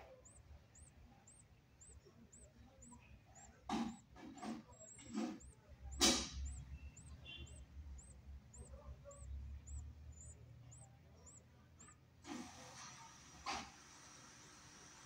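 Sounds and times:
budgerigar harsh calls: 0.0s - 12.0s
faint high chirp: 0.0s - 12.1s.

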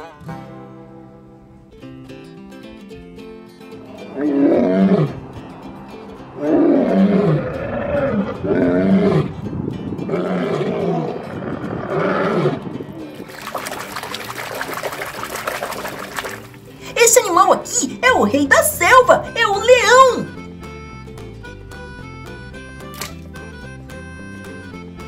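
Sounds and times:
lion roaring: 3.8s - 9.4s, 10.0s - 13.2s.

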